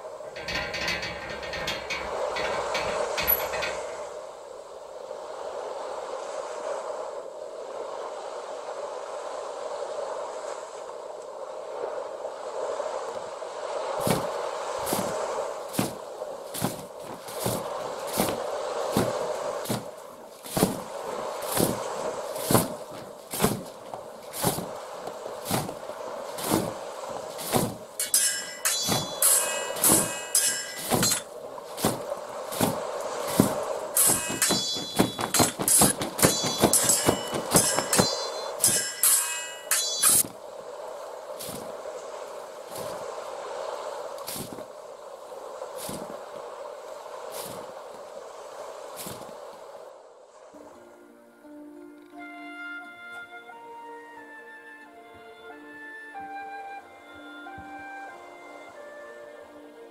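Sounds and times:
ringing metallic clangs: 0:00.3 - 0:04.3, 0:27.4 - 0:32.0, 0:32.6 - 0:40.3
sharp knocks: 0:00.4 - 0:04.1, 0:27.4 - 0:31.2, 0:32.6 - 0:40.3.

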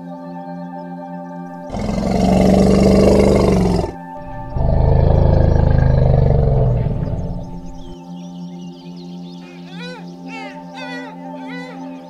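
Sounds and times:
elephant roaring: 0:01.6 - 0:08.0.

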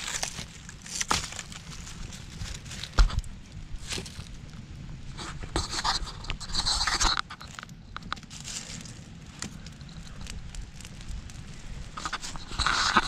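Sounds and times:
breathy hiss of fire: 0:07.8 - 0:13.0.

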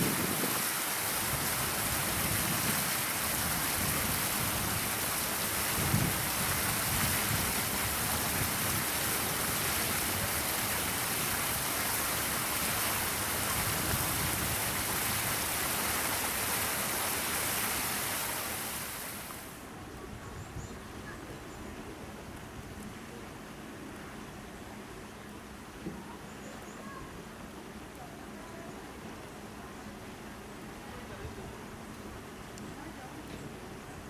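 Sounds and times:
wind buffeting microphone: 0:00.0 - 0:10.5.

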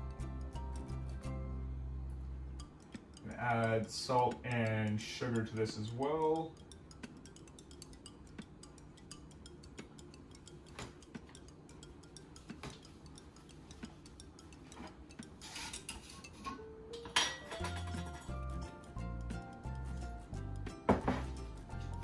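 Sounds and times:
spoon clicking against jars and bowl: 0:02.6 - 0:16.4
rattling and scraping spoonfuls: 0:02.6 - 0:16.6, 0:17.3 - 0:18.7.

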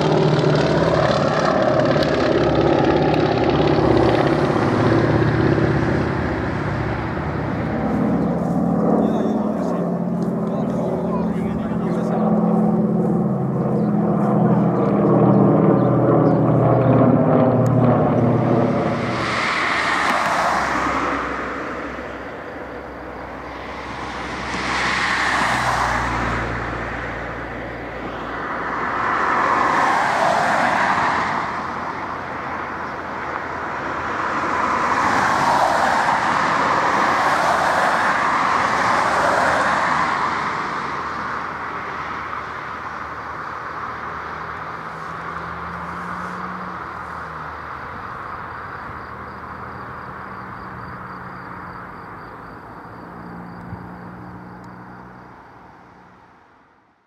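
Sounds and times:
plane landing on grass: 0:00.0 - 0:41.9
propeller plane engines droning: 0:00.0 - 0:56.3.

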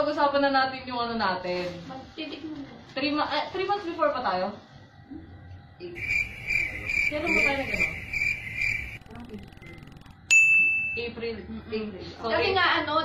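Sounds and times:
cricket-like chirping: 0:06.0 - 0:10.3
steady high beep: 0:06.0 - 0:11.0.

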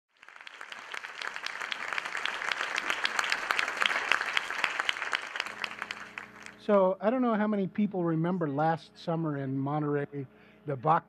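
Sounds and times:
audience applauding: 0:00.1 - 0:06.7.

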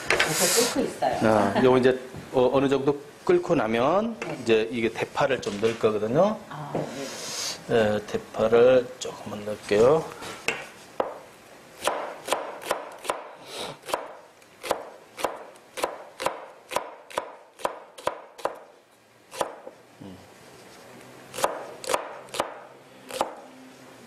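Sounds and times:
knife chopping on wooden board: 0:10.4 - 0:11.2, 0:11.8 - 0:18.6, 0:19.4 - 0:19.8, 0:21.4 - 0:23.4.

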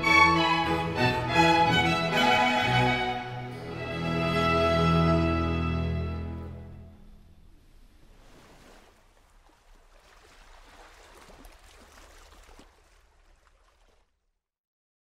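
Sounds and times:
rush of boat wake water: 0:07.4 - 0:14.3.

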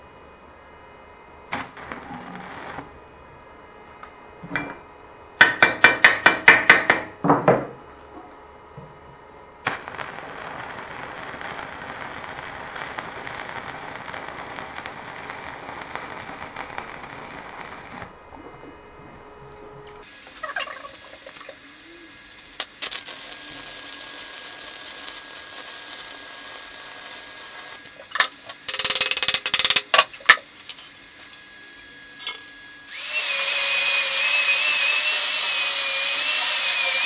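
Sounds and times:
arc welding crackle: 0:01.5 - 0:03.0, 0:09.6 - 0:18.2, 0:20.0 - 0:37.0.

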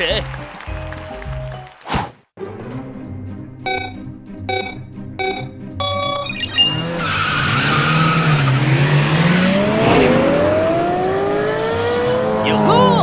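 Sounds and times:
countdown beeps: 0:03.6 - 0:07.0
race car engines revving: 0:06.8 - 0:13.0.

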